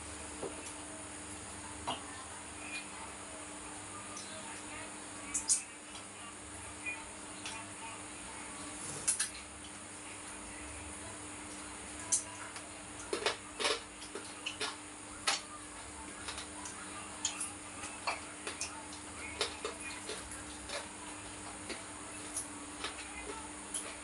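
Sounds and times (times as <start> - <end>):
fingers and food against plates: 12.0 - 24.0.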